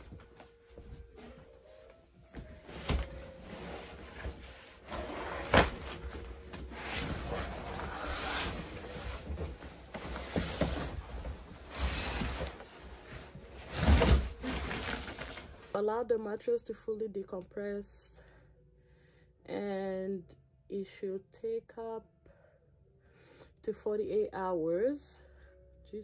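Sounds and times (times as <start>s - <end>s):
cardboard scraping: 2.4s - 15.6s
plastic wrap rustling: 2.4s - 15.8s.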